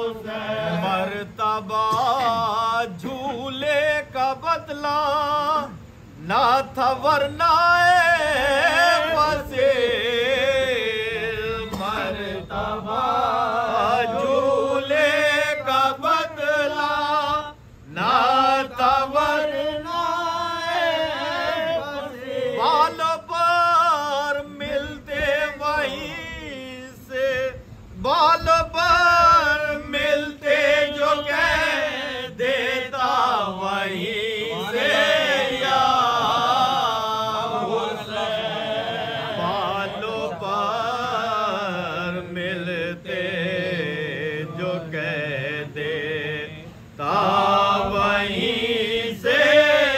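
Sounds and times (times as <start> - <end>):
lead reciter chanting: 0.0 - 49.9
men chanting a lament: 0.0 - 49.9.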